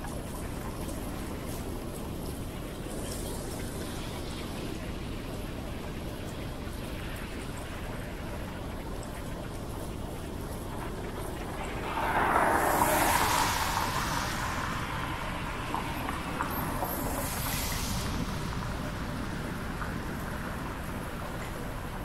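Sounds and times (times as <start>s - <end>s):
wind rumbling on microphone: 0.0s - 22.0s
car tyres hissing on wet road: 7.0s - 22.0s.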